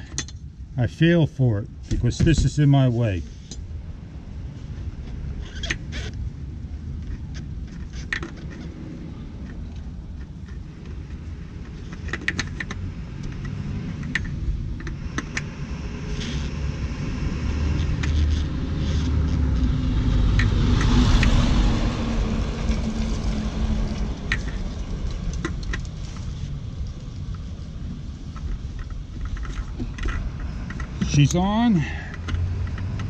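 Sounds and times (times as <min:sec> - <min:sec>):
vehicle passing with low rumble: 0:00.0 - 0:33.0
oil filter clicks and scrapes: 0:06.9 - 0:16.6, 0:17.7 - 0:33.0.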